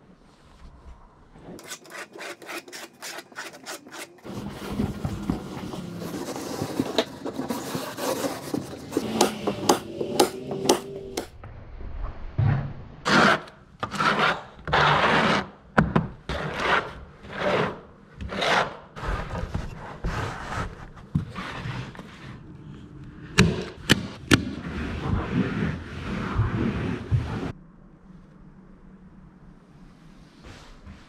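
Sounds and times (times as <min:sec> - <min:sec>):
carpet dragged across floor: 0:04.2 - 0:10.2, 0:19.0 - 0:22.4, 0:24.4 - 0:27.6, 0:29.9 - 0:31.0.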